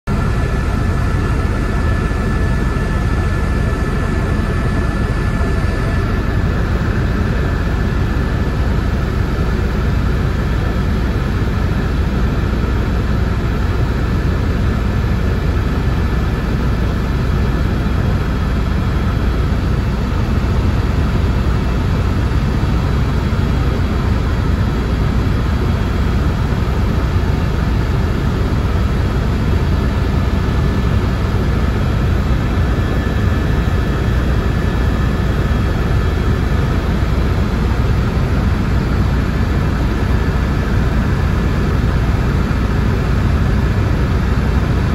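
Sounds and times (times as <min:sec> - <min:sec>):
helicopter engine and rotor drone: 0:00.0 - 0:44.9.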